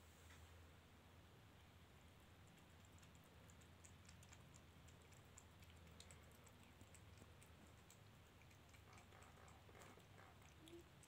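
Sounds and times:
low steady hum: 0.0 - 11.0
kitten eating clicks: 2.3 - 11.0.

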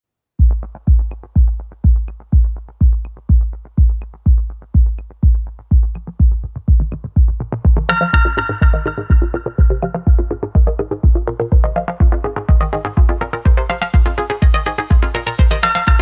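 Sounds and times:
electronic dance music: 0.4 - 16.0.

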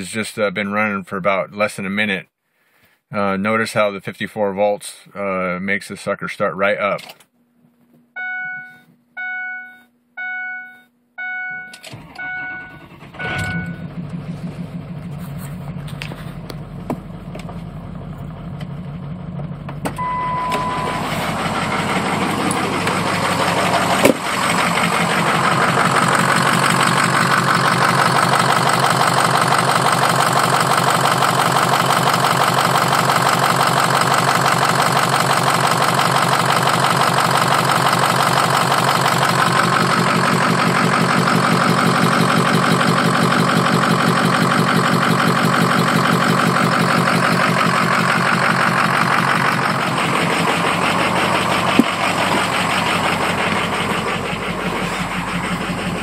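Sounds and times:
short beep: 8.2 - 13.9, 20.0 - 21.2
diesel engine idling: 11.9 - 56.0.

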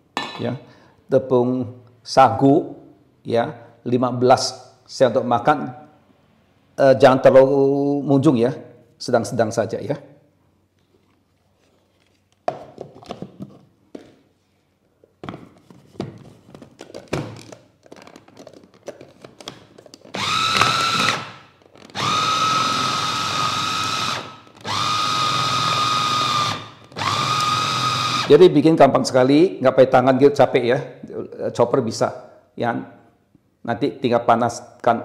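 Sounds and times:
food chopper motor whining: 20.1 - 28.3.

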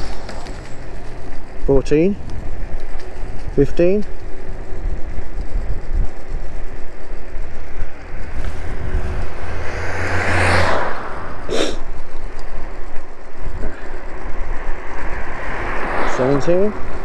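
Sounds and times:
wind and road rumble: 0.0 - 17.0
car passing: 4.2 - 17.0.

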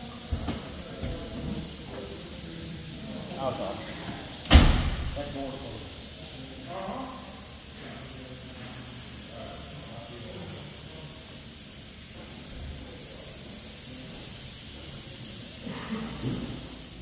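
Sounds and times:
faint voices: 0.0 - 4.4
steady hiss: 0.0 - 17.0.

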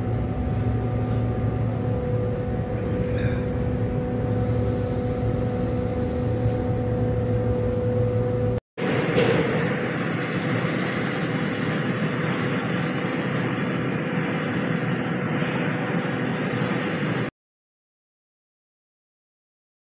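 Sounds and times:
faint hum: 0.0 - 9.0
compressed air hissing: 1.0 - 1.4, 4.3 - 6.7.

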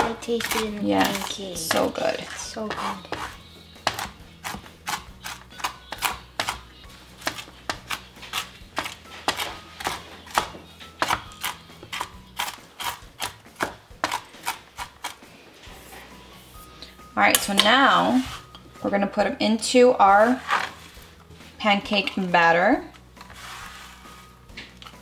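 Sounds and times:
knife chopping on plastic board: 0.0 - 1.9, 2.6 - 15.2.

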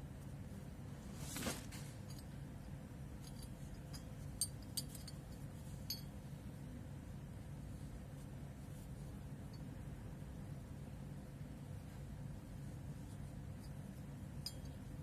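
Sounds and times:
soft handling rub: 0.1 - 2.3, 6.5 - 9.8
metal rings clinking: 3.2 - 6.2, 14.4 - 15.0.

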